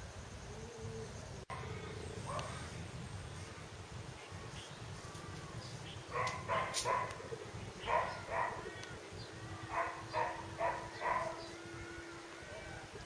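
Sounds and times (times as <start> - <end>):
dog barking: 6.1 - 7.2, 7.8 - 8.7, 9.7 - 11.5.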